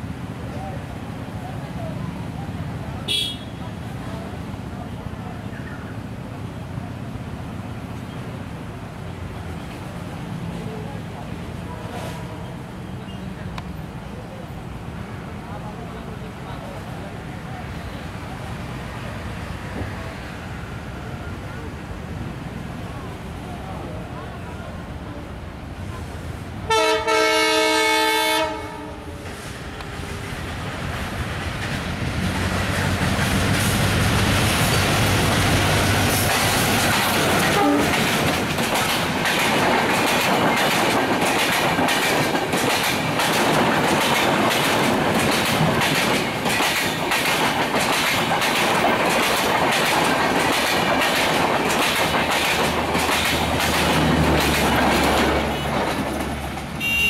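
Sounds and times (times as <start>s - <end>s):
diesel locomotive passing: 0.0s - 57.0s
train wheels clicking over rail joints: 29.3s - 57.0s.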